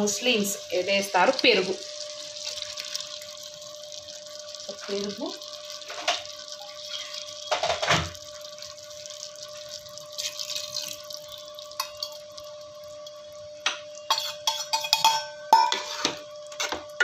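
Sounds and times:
curry bubbling in a pot: 0:00.0 - 0:17.0
faint steady hum: 0:00.0 - 0:17.0
metal spoon scraping a pot: 0:14.0 - 0:16.8.

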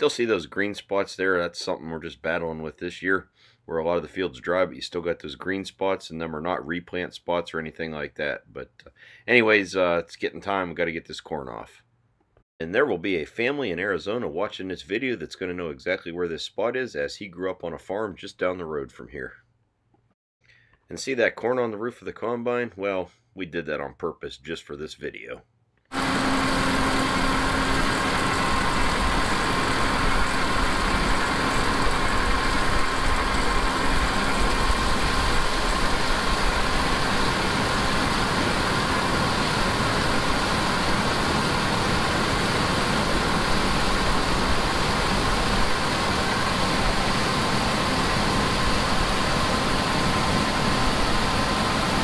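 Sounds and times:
combine harvester running: 0:26.0 - 0:52.0.

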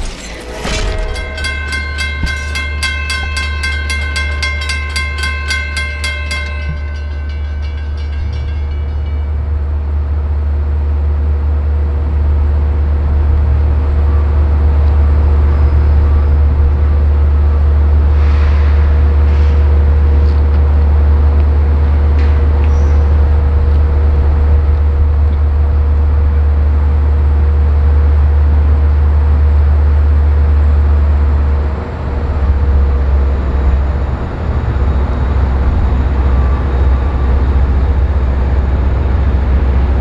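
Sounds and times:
approaching train rumble: 0:00.0 - 0:40.0
railroad crossing bell ringing: 0:00.4 - 0:10.6, 0:32.3 - 0:40.0.

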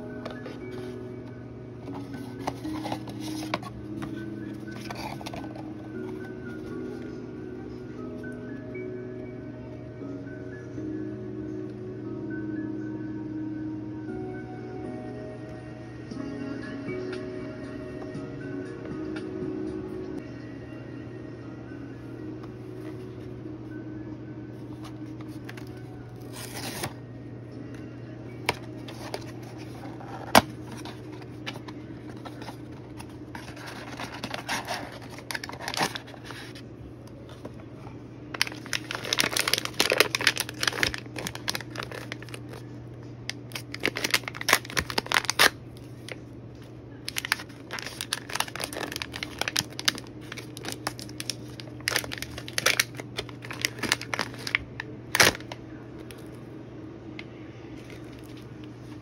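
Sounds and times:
steady low hum: 0:00.0 - 0:59.0
bag tearing and rustling: 0:38.4 - 0:42.6, 0:43.5 - 0:45.5, 0:47.1 - 0:55.5.

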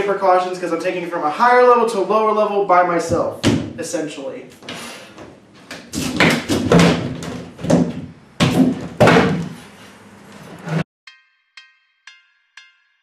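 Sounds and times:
knocks and clunks of wood: 0:05.7 - 0:09.6.

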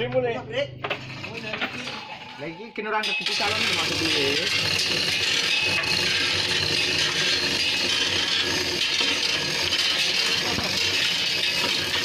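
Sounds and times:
hoist chain rattling and clinking: 0:03.0 - 0:12.0.

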